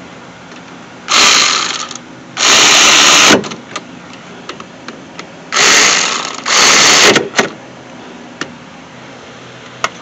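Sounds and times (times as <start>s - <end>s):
cordless power tool driving bolts: 1.1s - 3.6s, 5.5s - 7.6s.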